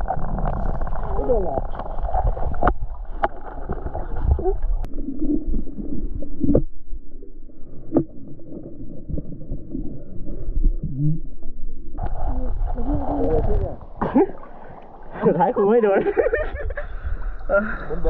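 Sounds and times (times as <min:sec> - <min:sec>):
sharp underwater clicks and knocks: 0:00.0 - 0:04.4
muffled underwater water gurgling: 0:00.0 - 0:18.0.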